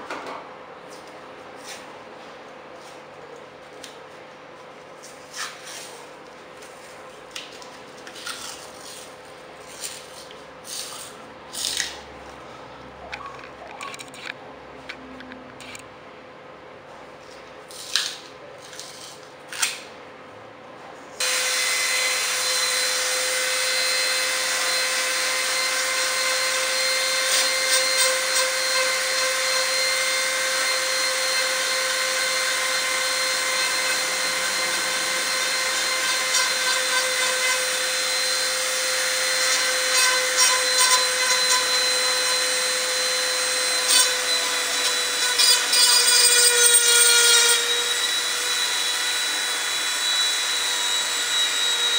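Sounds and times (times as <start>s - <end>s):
rotary tool grinding steel: 15.6s - 15.8s, 21.2s - 51.9s.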